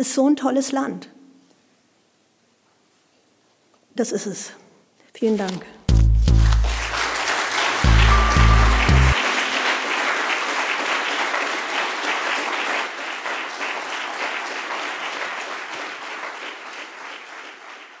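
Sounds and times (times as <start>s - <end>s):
audience applauding: 6.2s - 18.0s.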